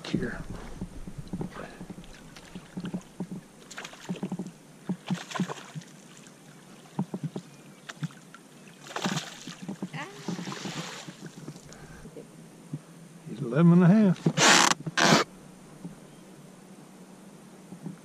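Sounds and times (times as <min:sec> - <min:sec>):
net splashing into water: 0:05.0 - 0:06.3, 0:08.8 - 0:11.3
fish splashing at surface: 0:08.8 - 0:11.4.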